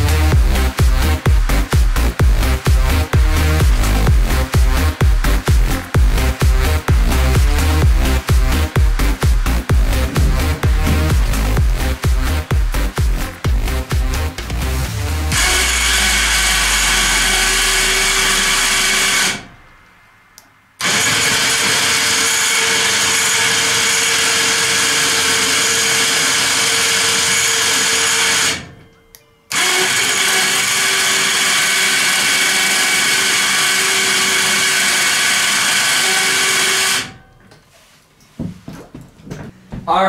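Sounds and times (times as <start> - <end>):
electric winch motor whining: 15.2 - 19.6, 20.8 - 37.3.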